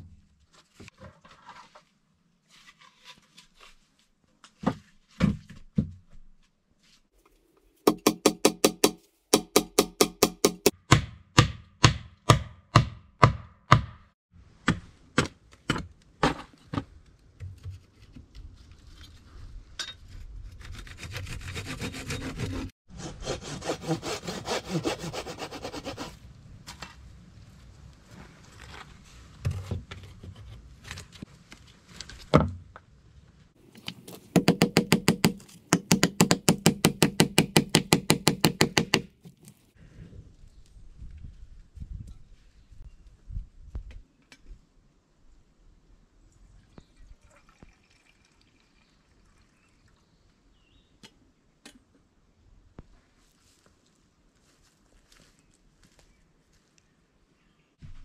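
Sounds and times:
hammer striking nails into wood: 7.9s - 14.1s, 34.3s - 39.1s
hand sawing wood: 20.6s - 26.2s.

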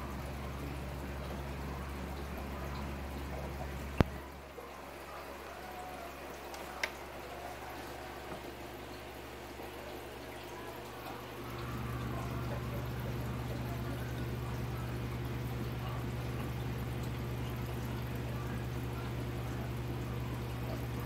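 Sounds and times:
water pump humming: 0.0s - 21.0s.

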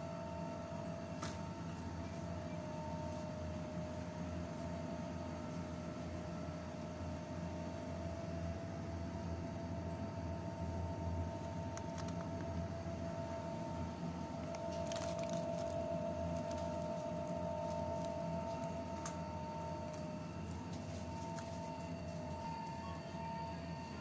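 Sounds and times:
refrigerator hum with steady tones: 0.0s - 24.0s.

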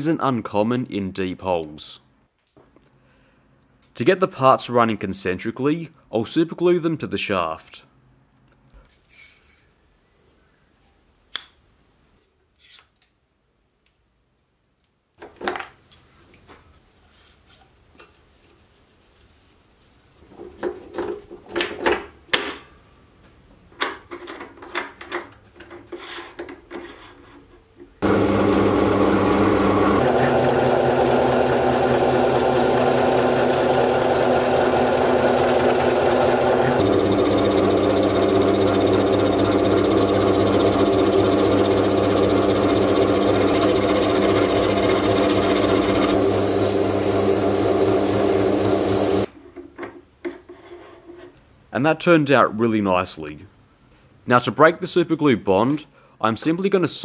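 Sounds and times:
metal lathe running: 28.0s - 49.3s.

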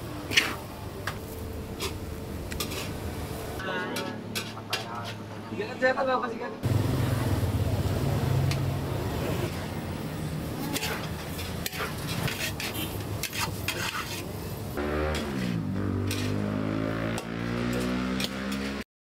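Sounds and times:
low traffic hum: 0.0s - 18.8s
metal utensil scraping cooking pan: 0.3s - 0.6s, 1.8s - 3.0s, 3.8s - 5.4s, 10.4s - 14.5s, 15.1s - 16.6s.

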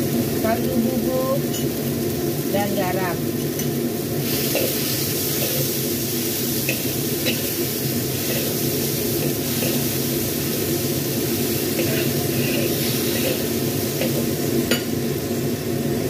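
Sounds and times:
vegetables sizzling in hot oil: 0.0s - 16.0s
metal spatula scraping wok: 3.4s - 14.9s.

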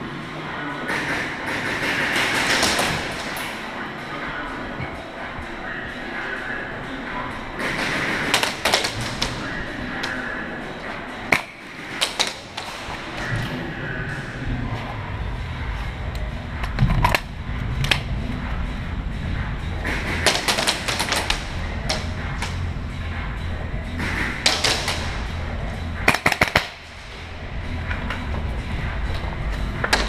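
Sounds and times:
steady low hum: 0.0s - 30.0s
airsoft guns firing: 0.9s - 3.4s, 7.6s - 9.4s, 20.1s - 21.5s, 26.0s - 26.8s.

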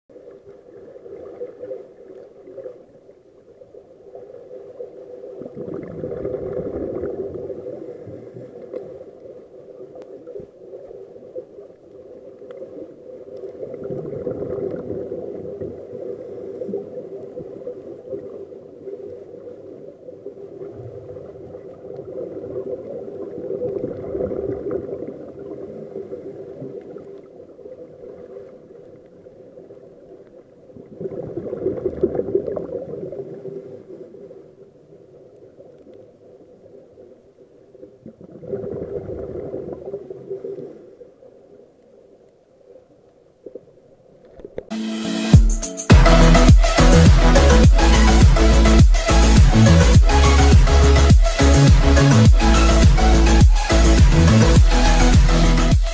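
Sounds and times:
gurgling wash of water: 0.1s - 41.4s
steady underwater hum: 0.1s - 44.6s.

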